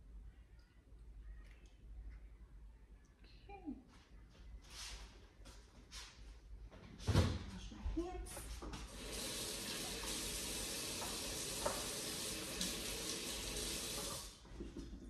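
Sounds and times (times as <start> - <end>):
tap running into sink: 8.8 - 15.0.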